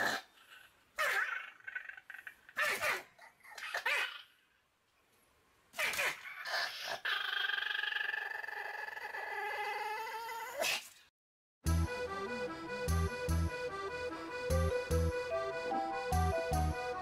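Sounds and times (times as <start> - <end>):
dog whining: 6.0 - 10.7.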